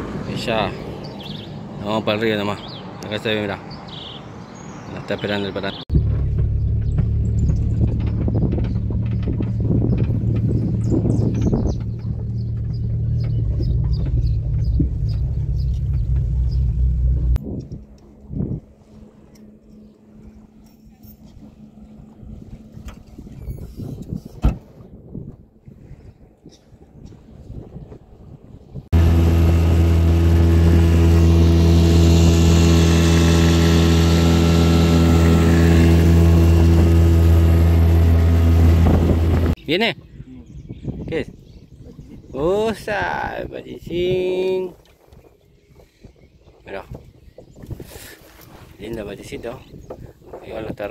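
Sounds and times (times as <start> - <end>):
wind: 0.0 - 50.9
car rumbling on dirt road: 5.9 - 20.4, 28.9 - 39.6
motorboat engine running: 5.9 - 23.8, 28.9 - 39.6.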